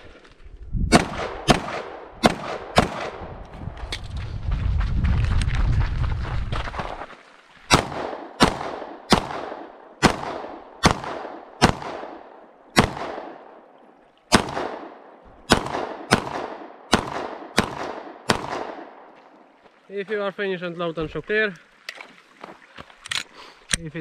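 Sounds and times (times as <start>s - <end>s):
pistol shots echoing: 0.9s - 3.2s, 7.7s - 13.6s, 14.3s - 19.1s.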